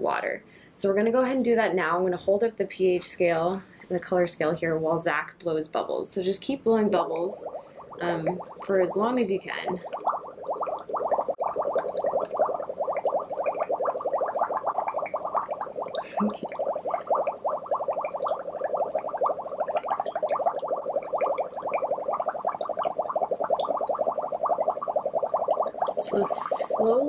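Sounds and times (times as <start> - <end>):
bubbling through straw in water: 6.4 - 27.0.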